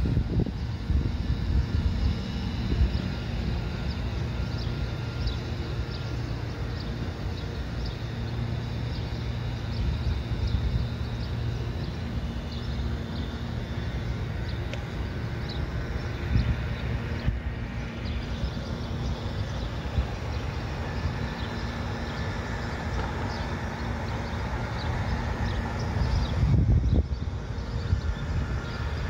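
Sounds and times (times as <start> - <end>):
faint steady hum: 0.0 - 29.0
small birds chirping: 0.1 - 29.0.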